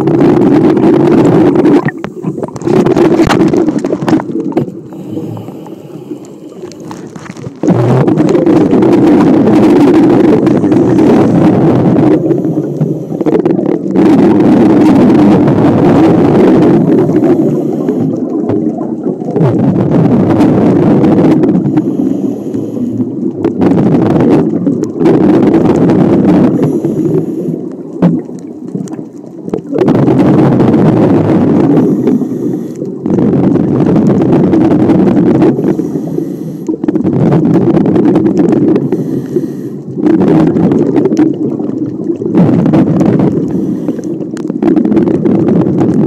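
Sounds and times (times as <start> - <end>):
bubbly diver exhalations: 0.0 - 46.0
regulator hiss on inhale: 4.9 - 6.9, 12.2 - 13.4, 17.0 - 18.2, 21.7 - 23.1, 26.5 - 27.8, 31.8 - 33.0, 35.5 - 36.9, 38.8 - 39.9, 43.4 - 44.4.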